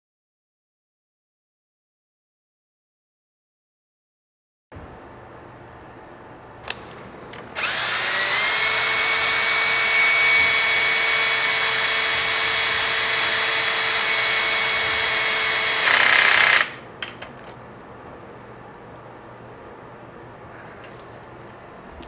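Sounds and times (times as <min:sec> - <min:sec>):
power drill motor whining: 0:07.5 - 0:16.8.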